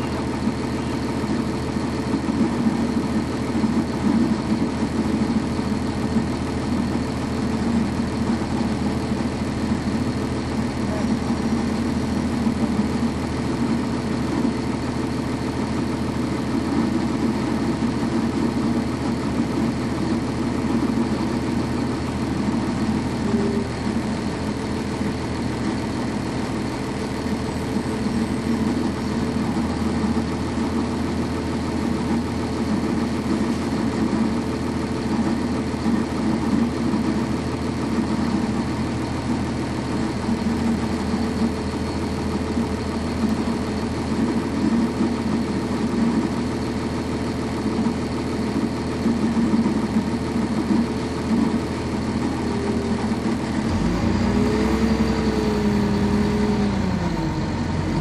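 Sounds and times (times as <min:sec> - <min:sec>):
diesel bus engine running: 0:00.0 - 0:58.0.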